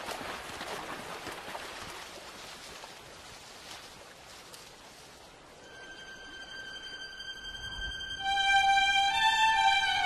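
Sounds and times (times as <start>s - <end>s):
river water flowing and splashing: 0.0s - 10.0s.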